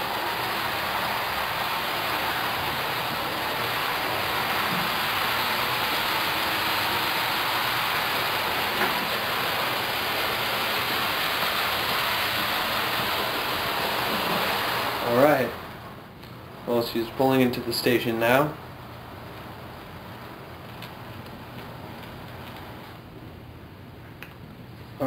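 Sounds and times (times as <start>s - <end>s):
model train wheels rolling on track: 0.0s - 15.1s.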